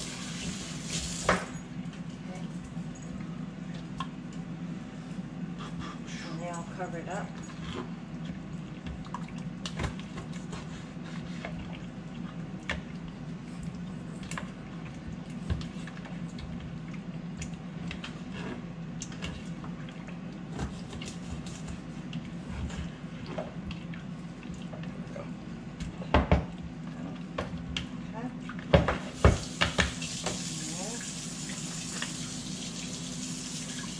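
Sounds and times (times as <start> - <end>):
steady low hum: 0.0 - 29.2.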